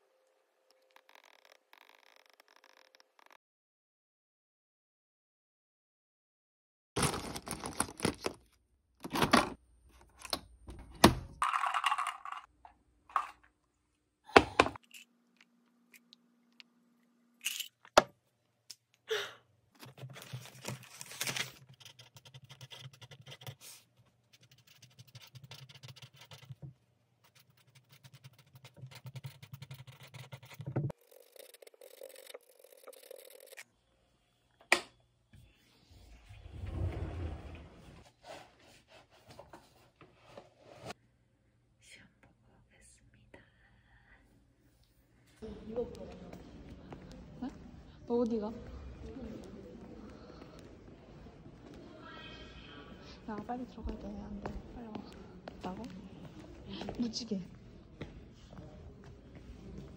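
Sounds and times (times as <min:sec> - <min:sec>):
paper rustling and tearing: 0:19.8 - 0:22.2
pen scraping on paper: 0:21.7 - 0:26.6, 0:27.2 - 0:33.6.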